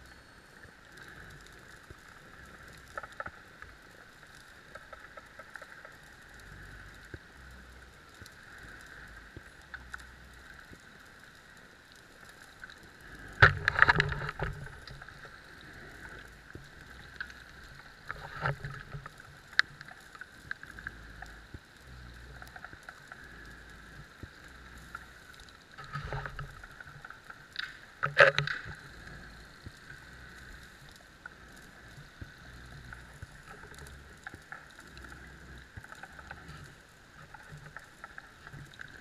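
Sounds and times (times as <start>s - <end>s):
underwater hiss with faint crackles: 0.0s - 39.0s.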